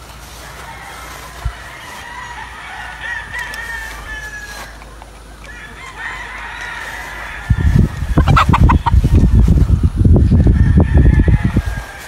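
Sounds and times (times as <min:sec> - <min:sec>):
roosters crowing: 0:00.0 - 0:12.0
rapid low thumping: 0:07.5 - 0:11.6.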